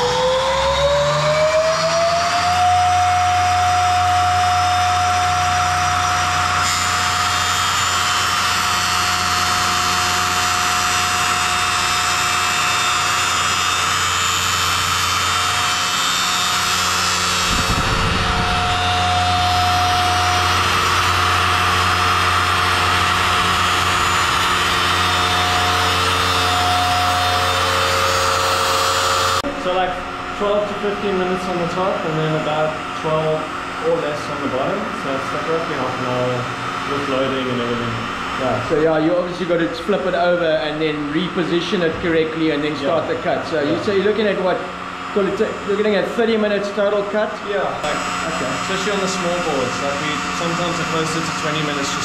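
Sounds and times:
high whine of spinning blade: 0.0 - 52.0
low machine hum: 2.6 - 52.0
brief low rumble: 17.4 - 20.1.

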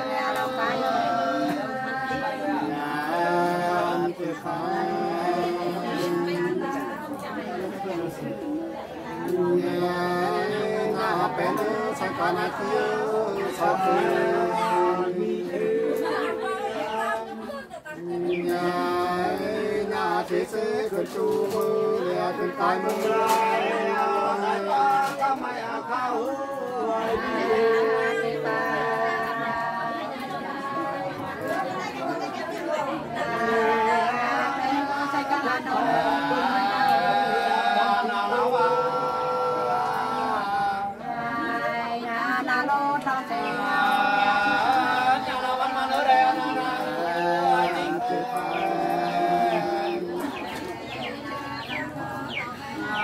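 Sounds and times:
two men singing in harmony: 0.0 - 31.8, 32.7 - 53.0.

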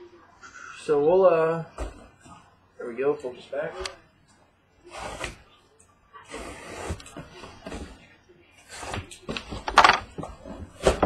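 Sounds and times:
cardboard scraping on desk: 4.8 - 5.5, 6.2 - 11.0.

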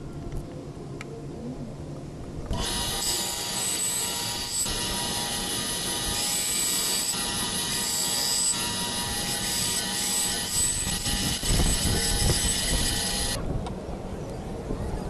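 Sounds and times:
band saw cutting wood: 2.5 - 13.4.

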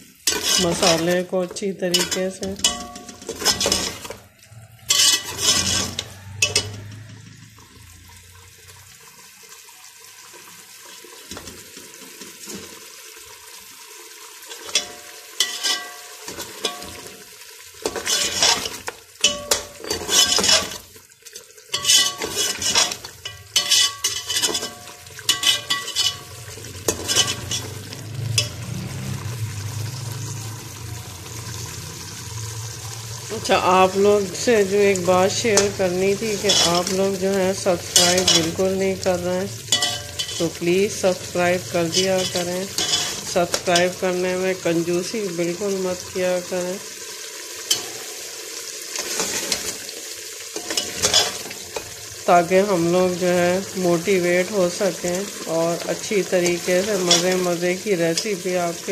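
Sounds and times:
low frying sizzle: 0.0 - 58.9
metal spatula scraping pot: 0.2 - 8.0, 14.5 - 17.1, 17.8 - 29.2, 33.3 - 45.0, 47.7 - 48.1, 48.9 - 49.8, 50.6 - 52.0, 55.8 - 58.9.

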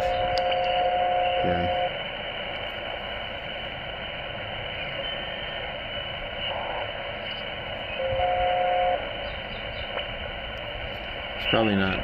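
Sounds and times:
steady whistle tones: 0.0 - 2.0, 4.7 - 5.7, 6.4 - 10.0
radio receiver hiss and static: 0.0 - 12.0.

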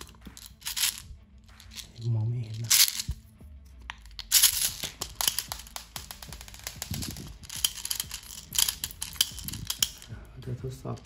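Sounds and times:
pellets clicking into magazine: 2.6 - 3.2, 3.9 - 10.1.

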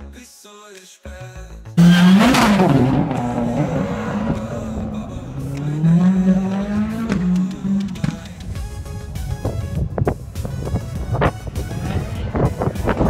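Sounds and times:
turbocharged car engine revving: 1.8 - 8.6, 11.2 - 13.0.

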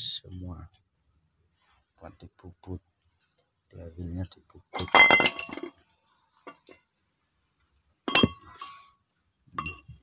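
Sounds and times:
metallic clinks: 8.0 - 10.0.

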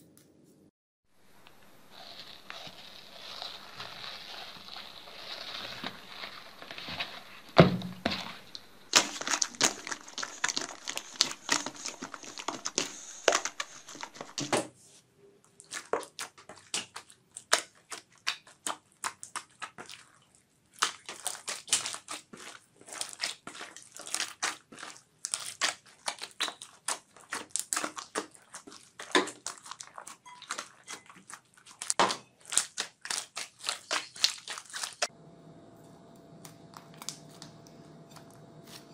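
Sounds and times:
beads crunching in slime: 1.2 - 7.5, 8.1 - 14.5, 20.7 - 35.1
thump: 7.6 - 8.2
slime crackling and popping: 20.7 - 35.1.

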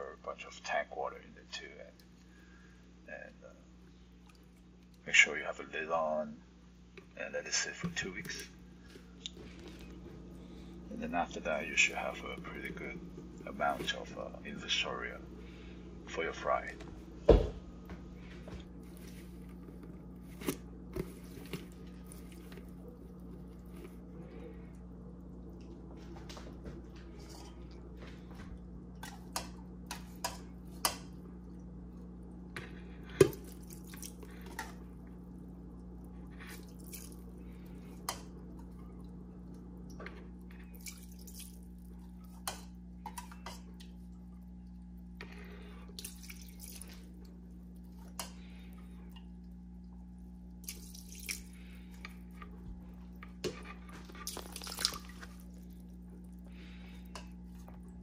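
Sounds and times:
steady low hum: 0.0 - 58.0
water splashing and dripping: 33.1 - 37.3, 38.1 - 44.9, 45.9 - 51.7, 53.9 - 58.0.

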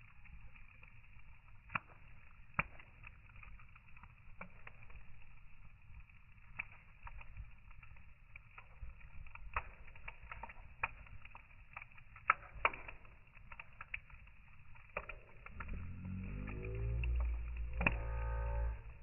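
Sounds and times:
fire popping: 0.0 - 19.0
wood fire crackling: 0.0 - 19.0
low droning tone rising: 15.4 - 19.0.

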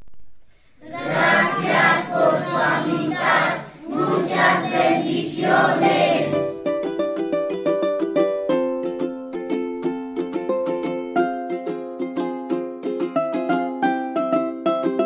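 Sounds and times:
boys singing together: 0.9 - 6.6.

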